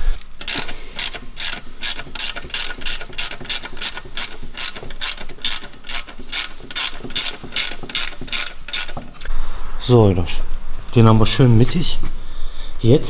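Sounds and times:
ratchet wrench clicking: 0.4s - 9.3s.

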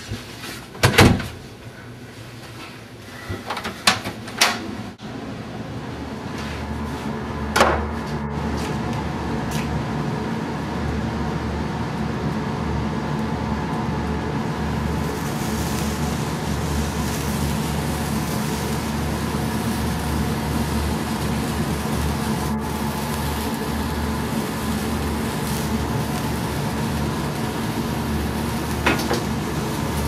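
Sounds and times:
steady low hum: 1.5s - 30.0s
sparkler fizzing: 14.6s - 30.0s.

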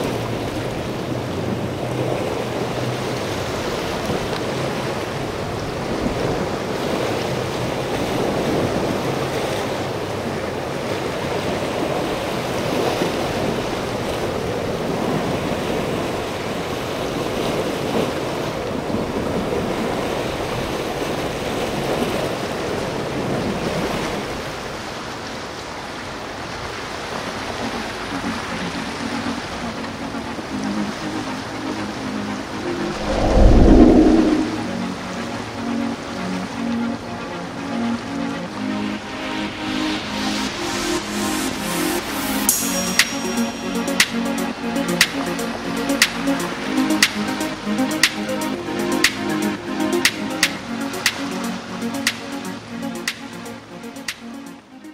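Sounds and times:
choppy sea: 0.0s - 54.9s
wind buffeting microphone: 32.7s - 34.8s.

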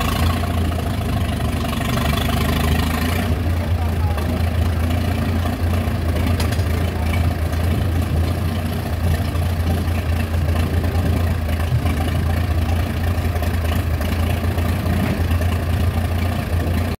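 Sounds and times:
tractor engine idling: 0.0s - 17.0s.

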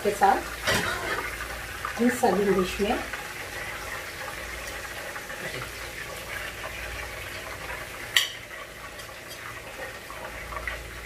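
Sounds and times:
oil sizzling in a frying pan: 0.0s - 11.0s.

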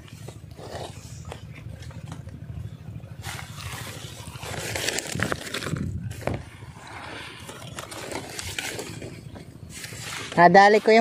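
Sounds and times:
grass rustling underfoot: 0.0s - 11.0s
wind rumble on microphone: 3.5s - 7.4s.

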